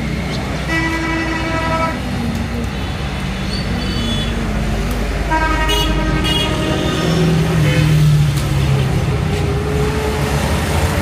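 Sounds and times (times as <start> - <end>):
car horn: 0.7 - 2.0, 5.3 - 8.0.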